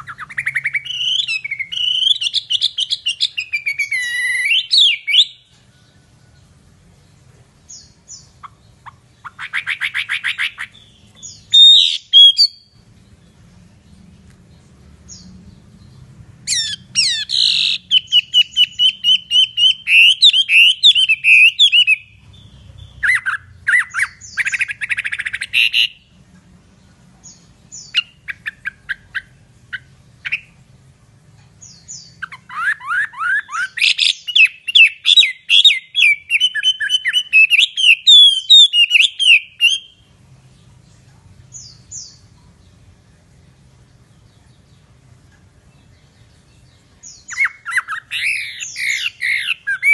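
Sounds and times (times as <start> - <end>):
bird singing whistled phrases and trills: 0.0 - 5.6, 7.6 - 13.4, 16.5 - 26.1, 27.2 - 30.6, 31.6 - 40.1, 45.8 - 49.9.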